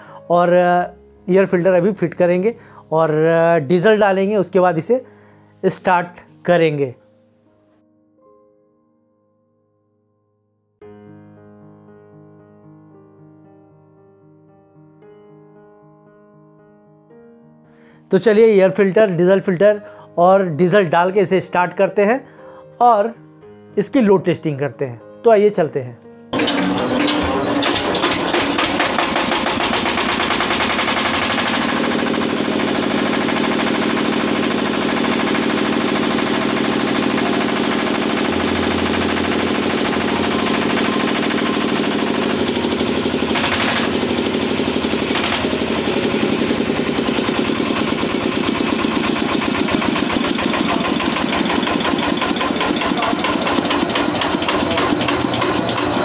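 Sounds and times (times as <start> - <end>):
diesel engine knocking: 28.4 - 56.0.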